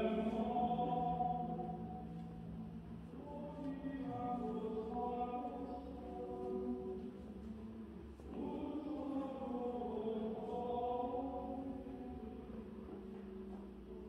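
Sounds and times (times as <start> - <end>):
choir chanting: 0.0 - 2.2, 8.3 - 12.6.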